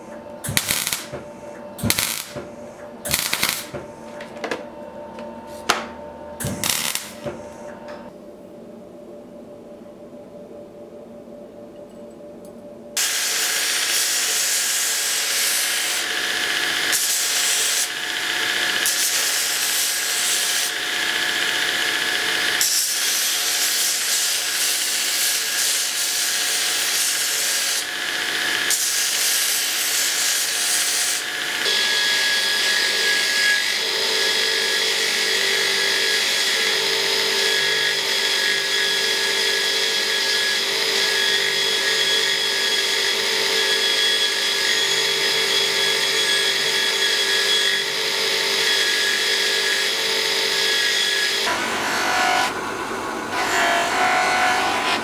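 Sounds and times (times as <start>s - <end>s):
mig welding crackle: 0.4s - 3.9s, 6.4s - 7.5s, 13.0s - 31.8s
belt grinder grinding steel: 13.0s - 55.0s.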